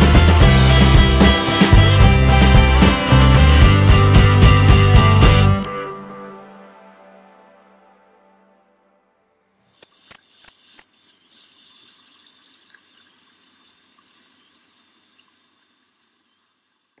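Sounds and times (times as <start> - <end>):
high piping bird calls: 9.5 - 17.0.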